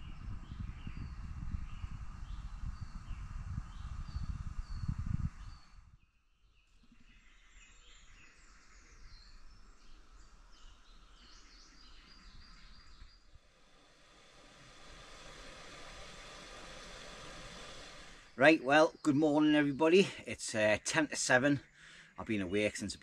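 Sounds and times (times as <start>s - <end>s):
low rumbling on microphone: 0.0s - 6.0s, 9.2s - 19.1s
songbirds chirping and singing: 18.4s - 23.0s.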